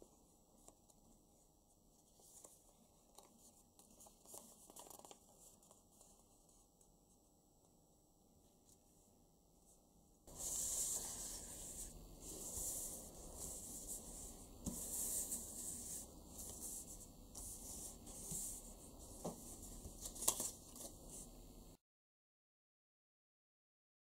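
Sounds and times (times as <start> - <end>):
hands rubbing paper: 10.3 - 21.3.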